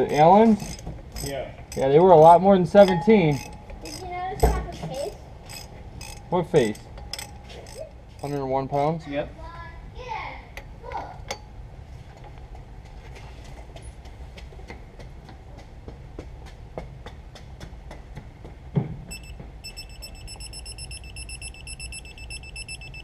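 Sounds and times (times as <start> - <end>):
wrench ratcheting clicks: 0.0 - 8.9
torque wrench beeping: 0.0 - 9.0, 19.1 - 23.0.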